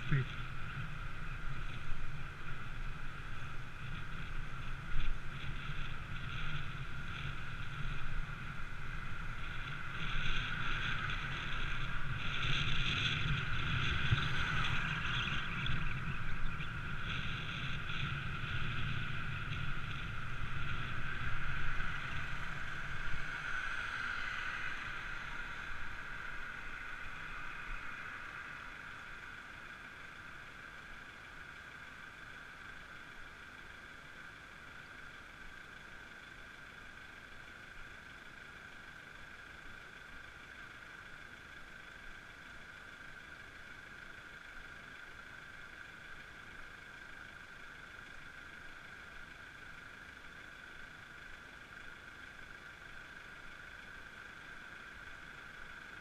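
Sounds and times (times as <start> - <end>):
wind rumbling on microphone: 0.0 - 29.8
road noise: 0.0 - 56.0.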